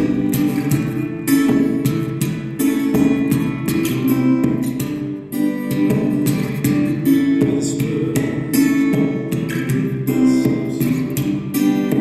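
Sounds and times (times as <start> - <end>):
acoustic guitar strumming chords: 0.0 - 12.0.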